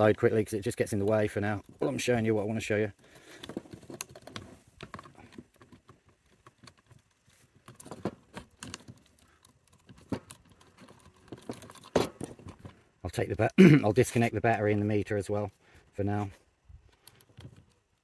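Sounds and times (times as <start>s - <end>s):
light clicks and taps of handling: 16.8s - 18.0s.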